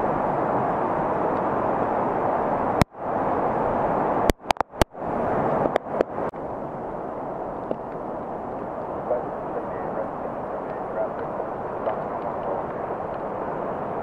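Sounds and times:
falling rain: 0.0 - 14.0
floodwater rushing: 0.0 - 14.0
sharp clicks: 4.3 - 4.9.

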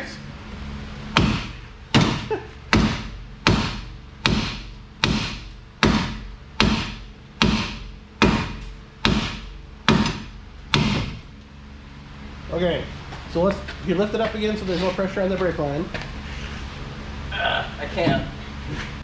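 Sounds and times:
hammer striking metal: 1.2 - 11.2.

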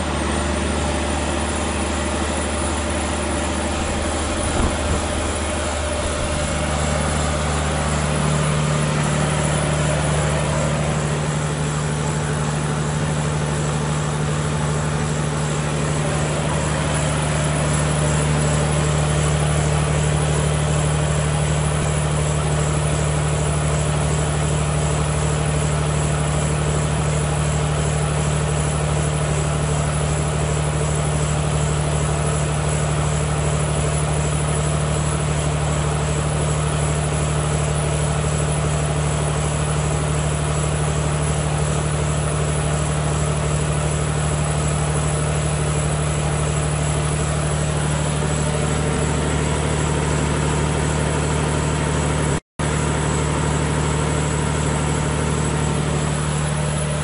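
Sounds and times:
diesel generator humming: 0.0 - 57.0.

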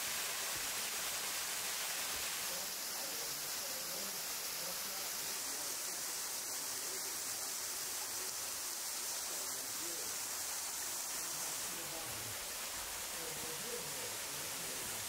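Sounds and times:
creek and waterfall rushing: 0.0 - 15.0.

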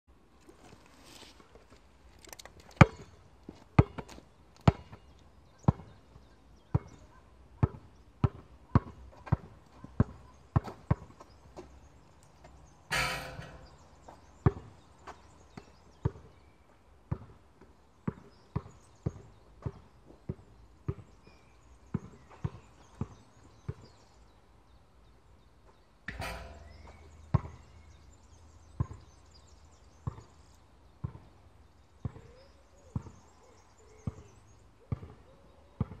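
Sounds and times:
basketball bouncing on hard court: 7.6 - 11.1, 17.1 - 17.4, 35.8 - 36.0.

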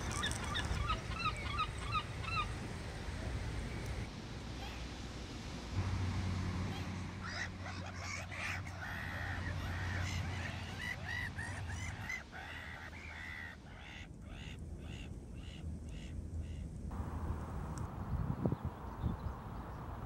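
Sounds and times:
gulls calling: 0.0 - 2.7, 6.6 - 16.7.

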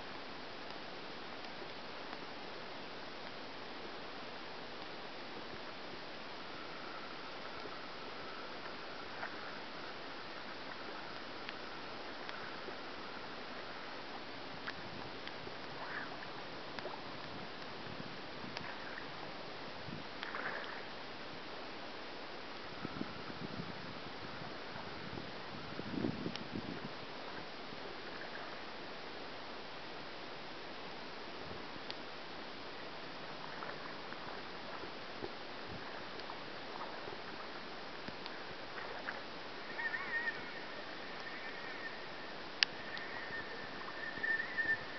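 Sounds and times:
river water flowing: 0.0 - 44.9
faint clicks: 3.1 - 3.6, 4.7 - 19.1, 20.2 - 20.9, 26.3 - 26.6, 31.5 - 32.1, 33.4 - 44.9
river current hissing: 35.5 - 44.9
faint chirps: 38.2 - 44.9.

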